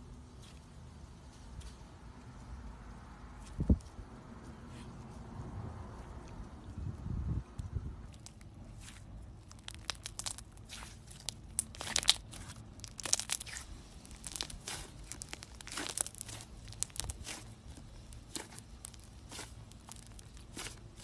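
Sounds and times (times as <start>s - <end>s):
slime tearing: 8.1s - 21.0s
slime crackling pops: 9.4s - 17.5s.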